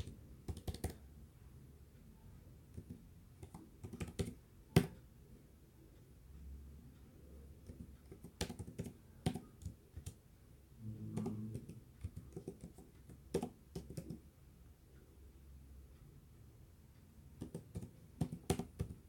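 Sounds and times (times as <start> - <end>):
tapping on touchscreen keyboard: 0.0 - 1.0, 2.8 - 5.0, 7.6 - 10.2, 11.1 - 14.2, 17.4 - 19.0.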